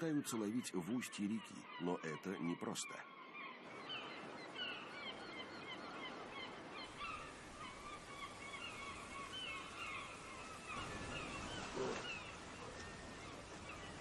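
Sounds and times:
flock of birds calling: 0.0s - 14.0s
river water rushing: 6.3s - 14.0s.

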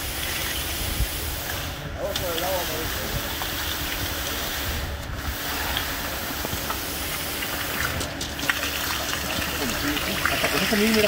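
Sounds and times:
concrete pump running: 0.0s - 11.0s.

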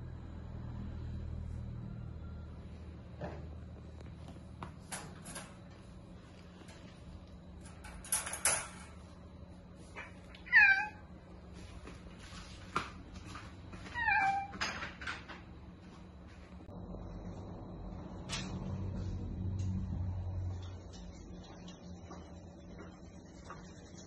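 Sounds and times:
cat meowing: 10.3s - 11.1s, 13.9s - 14.6s.

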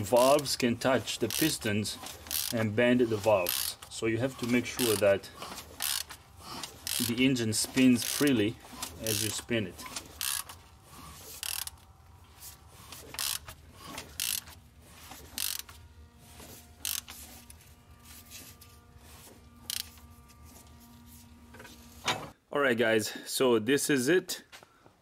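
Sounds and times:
ratchet wrench clicking: 1.1s - 11.9s, 12.8s - 14.6s, 15.2s - 15.8s, 16.8s - 17.2s, 19.6s - 20.0s.

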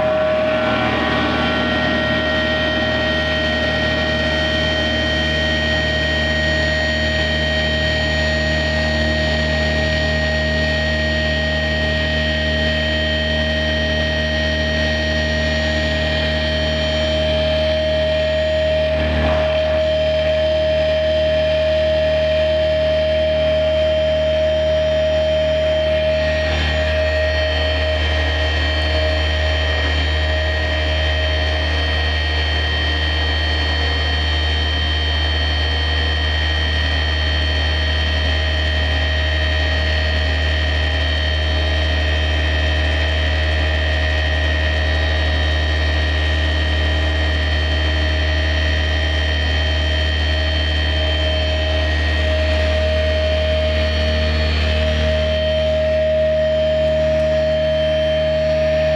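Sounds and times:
electric guitar feedback drone: 0.0s - 58.9s
low hum: 0.0s - 58.9s.

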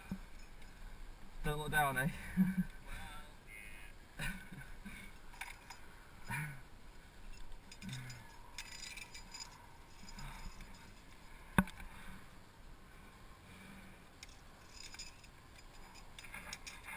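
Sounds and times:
carabiners clinking: 0.0s - 0.8s, 4.9s - 6.6s, 7.2s - 11.4s, 14.2s - 16.9s.

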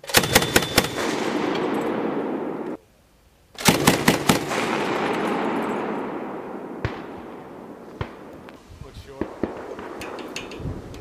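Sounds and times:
grenade machine gun burst: 0.0s - 2.1s, 3.6s - 5.9s
rolling gunfire echo: 0.0s - 2.8s, 3.6s - 11.0s.

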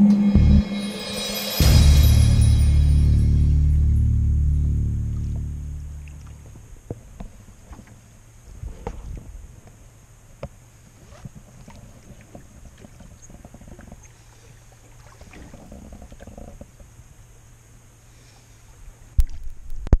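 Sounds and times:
short loud rumble: 0.0s - 6.4s
paddle strokes in water: 10.8s - 16.9s
water gurgling along hull: 10.8s - 19.6s.

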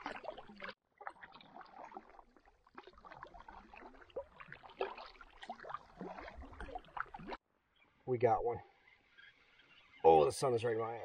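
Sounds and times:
water splashing and dripping: 0.0s - 7.4s.

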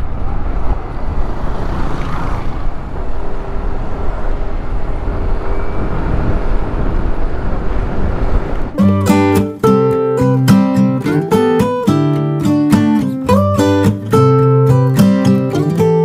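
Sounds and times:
wind noise on microphone: 0.0s - 9.4s.

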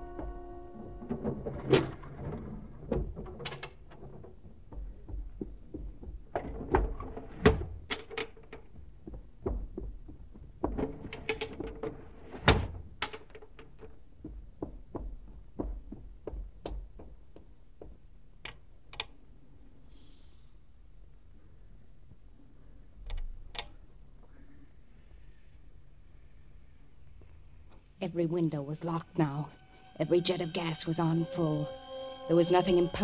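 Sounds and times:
windows shut and locked: 10.7s - 13.4s.

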